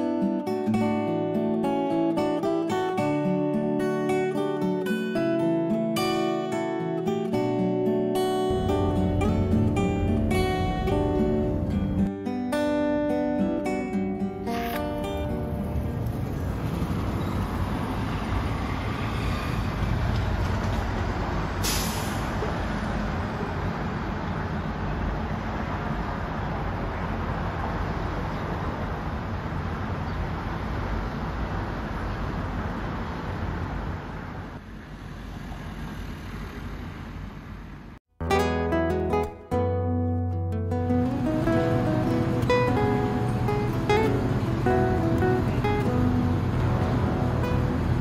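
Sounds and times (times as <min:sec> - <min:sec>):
city traffic noise: 0:00.0 - 0:39.8, 0:40.5 - 0:48.0
brief sharp hiss: 0:21.6 - 0:22.6.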